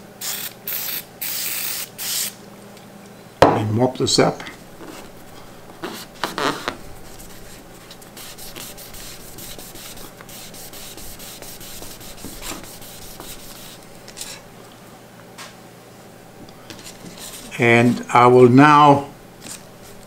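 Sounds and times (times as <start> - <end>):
pad scrubbing paper: 4.8 - 14.4, 16.7 - 17.6.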